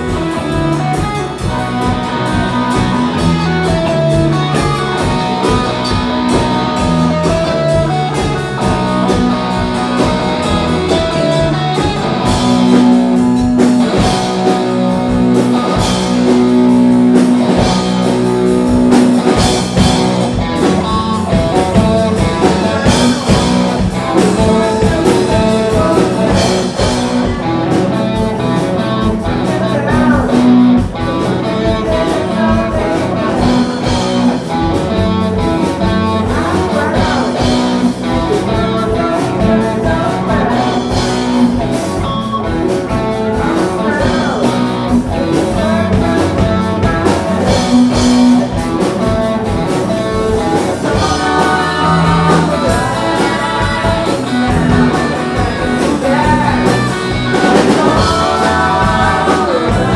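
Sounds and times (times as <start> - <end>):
bass guitar: 0.0 - 59.9
drums: 0.0 - 59.9
electric guitars: 0.0 - 59.9
person singing: 19.1 - 59.9.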